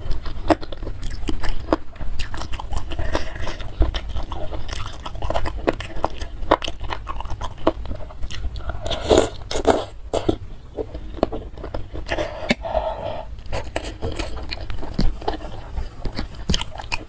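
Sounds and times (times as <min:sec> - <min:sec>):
wet chewing with lip clicks: 0:00.0 - 0:17.0.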